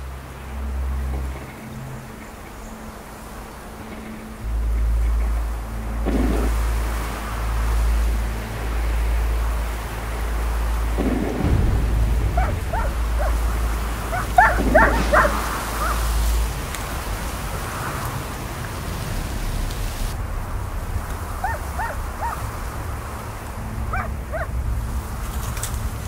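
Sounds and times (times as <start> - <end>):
steady rain: 0.0 - 26.0
low thunder rumble: 5.4 - 26.0.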